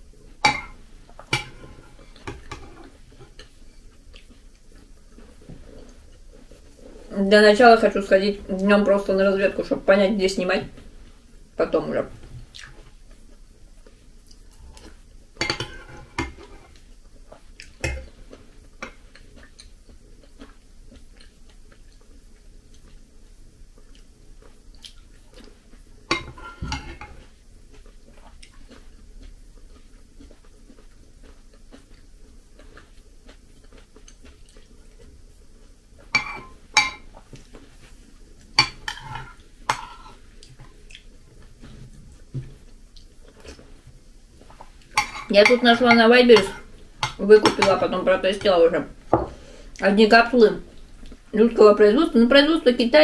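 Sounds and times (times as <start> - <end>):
spoon clinking against ceramic bowl: 0.4 - 1.6, 36.2 - 37.0.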